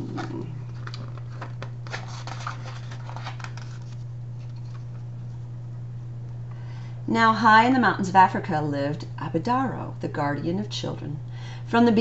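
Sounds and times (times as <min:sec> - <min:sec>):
book pages rustling: 0:00.0 - 0:05.4.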